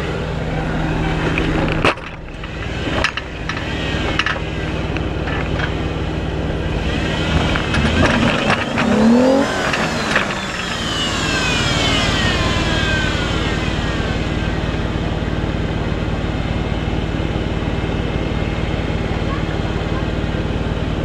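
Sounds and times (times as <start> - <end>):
whine falling in pitch: 0.0 - 4.6
engine knocks: 0.0 - 12.8
car engine running: 0.0 - 21.0.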